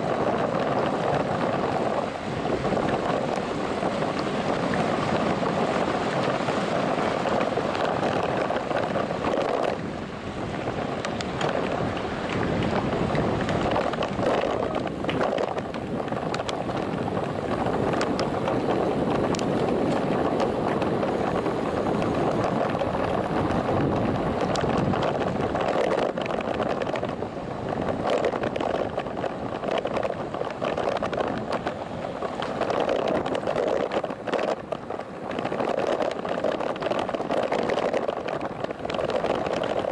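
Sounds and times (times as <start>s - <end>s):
wind rushing over microphone: 0.0s - 39.9s
faint clicks and rattles: 10.7s - 39.9s.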